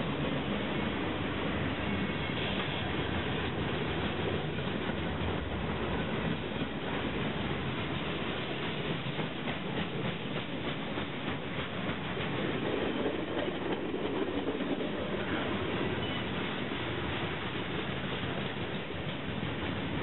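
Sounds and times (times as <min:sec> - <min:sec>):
freight train wheels rumbling: 0:00.0 - 0:20.0
wheels clacking over rail joints: 0:01.8 - 0:16.6.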